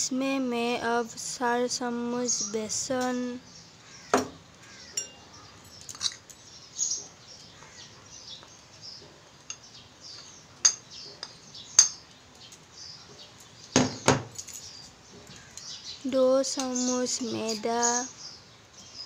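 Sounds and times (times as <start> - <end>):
spoon clinking on plate and bowl: 4.9 - 6.4, 9.5 - 9.7, 10.6 - 12.0.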